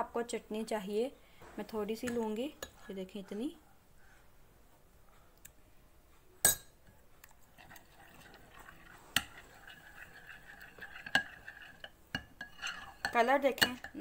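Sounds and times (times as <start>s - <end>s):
wet scraping of spoon: 7.2s - 14.0s.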